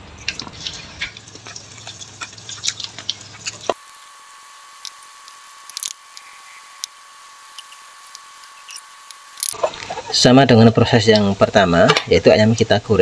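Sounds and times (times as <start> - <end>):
chicken frying in hot oil: 0.0 - 13.0.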